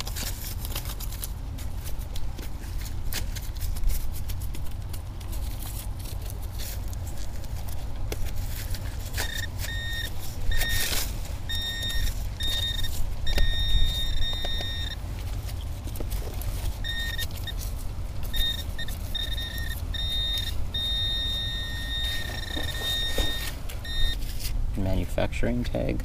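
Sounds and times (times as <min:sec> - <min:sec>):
digging scrapes and clicks: 0:00.0 - 0:24.6
steady low rumble: 0:00.0 - 0:26.0
metal detector beeps: 0:08.6 - 0:15.0, 0:16.8 - 0:24.2.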